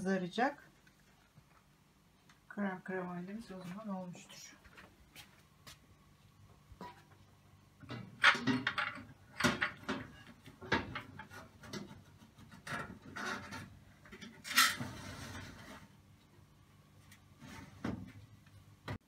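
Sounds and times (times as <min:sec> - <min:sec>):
tray scraping on oven rack: 0:09.5 - 0:16.0, 0:17.4 - 0:18.0.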